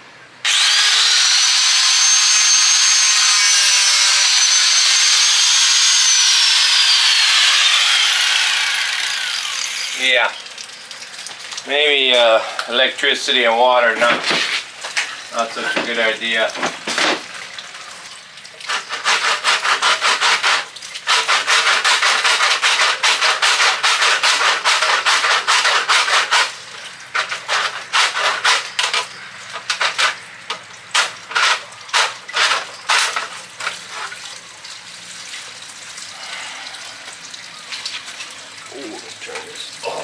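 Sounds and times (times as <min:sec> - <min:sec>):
hand saw cutting pipe: 0:00.5 - 0:10.3, 0:15.6 - 0:17.3, 0:18.6 - 0:30.2, 0:30.9 - 0:34.3.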